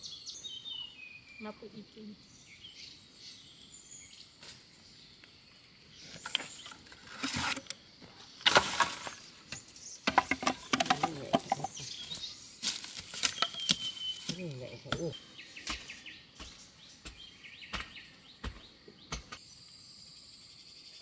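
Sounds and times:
debris scraping and rustling: 6.0 - 14.8
loud bamboo crack: 8.4 - 11.7, 12.6 - 14.4
machete hollow knocks: 14.9 - 19.4.

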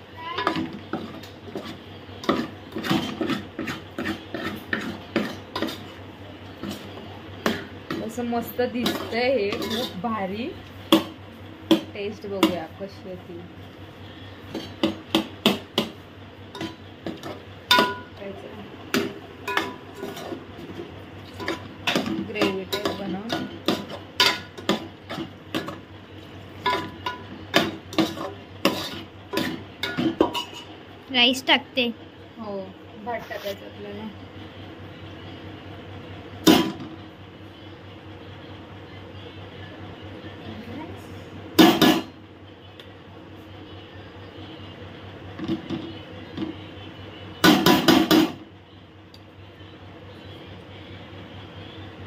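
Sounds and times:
spoon scraping metal pot: 1.1 - 6.0, 8.8 - 10.1, 27.9 - 30.7.

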